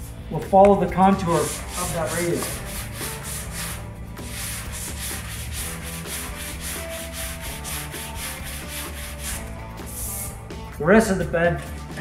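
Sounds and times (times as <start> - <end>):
sandpaper scratching on sheet metal: 1.2 - 10.3.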